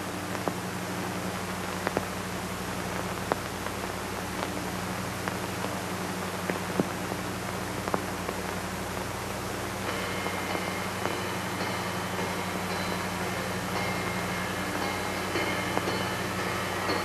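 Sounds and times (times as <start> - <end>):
static-like hiss: 0.0 - 17.0
low hum: 4.1 - 17.0.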